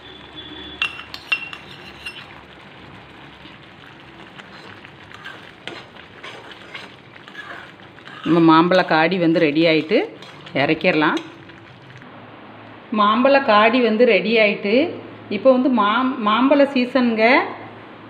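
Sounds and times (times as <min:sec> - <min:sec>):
spoon clinking on pan: 0:00.7 - 0:02.4
spoon scraping metal pan: 0:00.7 - 0:02.5, 0:04.2 - 0:12.0.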